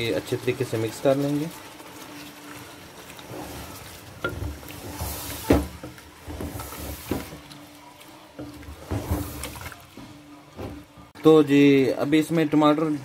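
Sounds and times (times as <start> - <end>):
wooden spatula scraping pot: 2.2 - 10.2.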